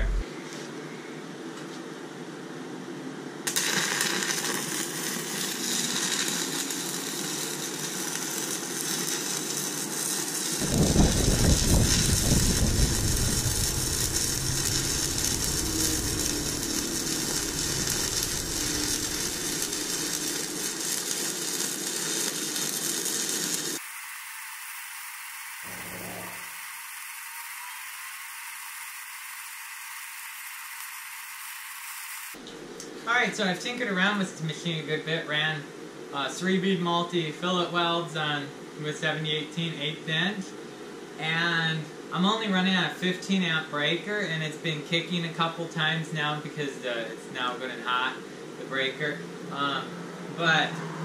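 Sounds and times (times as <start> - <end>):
welding arc hissing: 0.0 - 0.2, 3.5 - 32.4.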